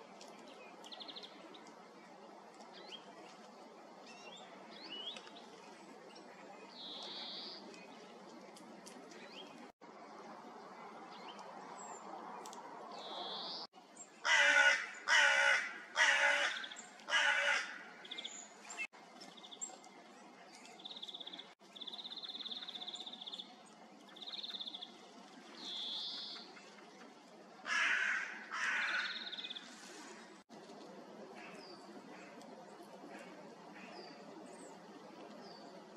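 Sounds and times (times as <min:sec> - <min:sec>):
crow cawing: 0:14.2 - 0:17.8, 0:27.7 - 0:29.2.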